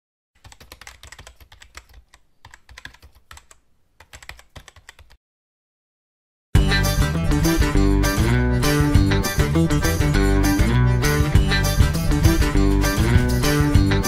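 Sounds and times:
rapid keyboard key clicks: 0.4s - 5.2s.

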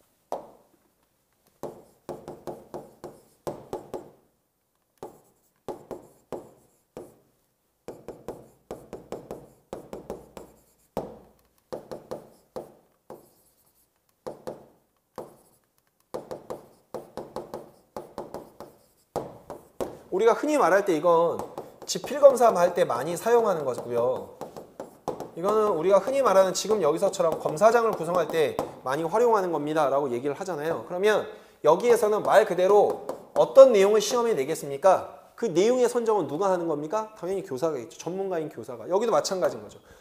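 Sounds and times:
chalk writing on a chalkboard: 1.5s - 4.2s, 5.0s - 29.5s, 31.8s - 34.2s.

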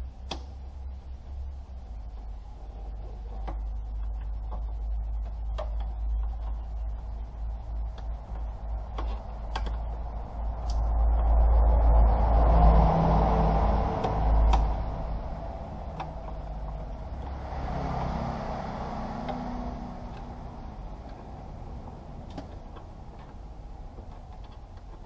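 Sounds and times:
sharp clicks: 0.0s - 0.6s, 3.4s - 25.0s
steady low hum: 0.0s - 25.0s
plastic trim creaking and rubbing: 2.2s - 11.8s.

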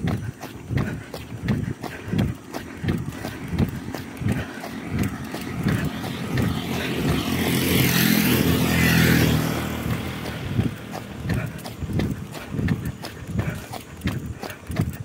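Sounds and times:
running footsteps on asphalt: 0.0s - 15.0s
vehicle driving past: 3.0s - 13.0s.

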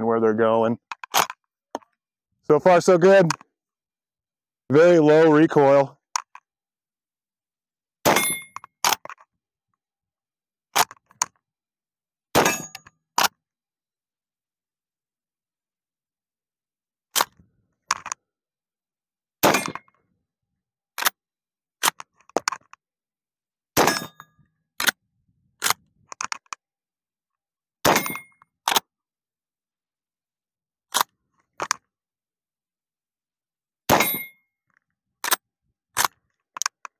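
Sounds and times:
rifle lever clanking: 0.9s - 1.9s
bullets ringing off steel targets: 8.1s - 8.6s, 12.4s - 12.8s, 19.4s - 19.8s, 23.8s - 24.2s, 27.9s - 28.3s, 33.9s - 34.4s.

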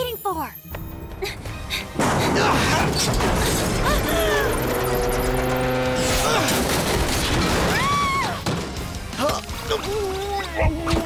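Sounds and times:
crashing and rumbling destruction: 2.0s - 9.3s.

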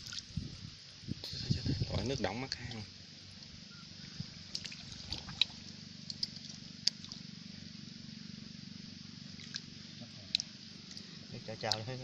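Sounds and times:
steady low hum: 0.0s - 12.0s
hand splashing in mud and water: 4.4s - 7.2s.

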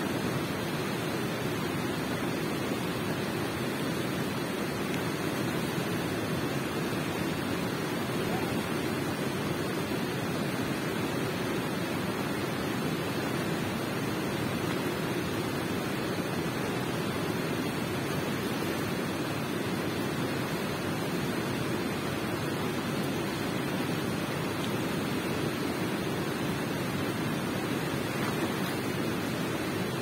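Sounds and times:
water flowing in a cave: 0.0s - 30.0s.

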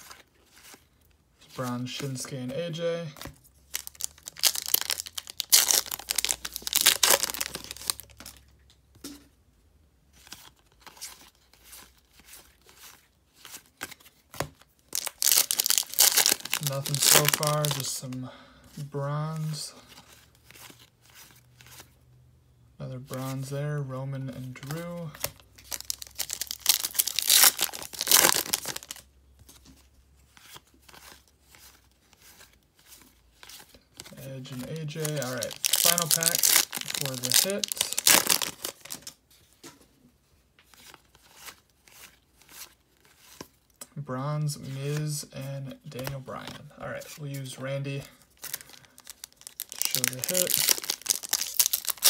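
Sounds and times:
faint rustling of cards: 0.0s - 8.7s, 10.1s - 22.1s, 22.8s - 52.0s
foil wrapper tearing and crinkling: 3.7s - 8.3s, 14.9s - 17.9s, 25.6s - 29.0s, 34.6s - 39.1s, 48.3s - 52.0s.

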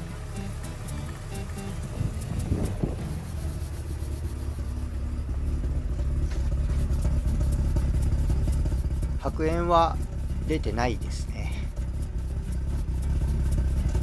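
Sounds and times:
rotary engine idling roughly: 0.0s - 14.0s.

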